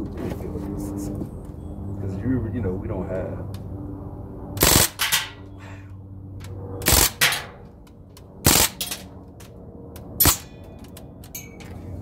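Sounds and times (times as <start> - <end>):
air rifle shots: 4.6 - 5.4, 6.8 - 7.6, 8.4 - 9.1, 10.2 - 10.5.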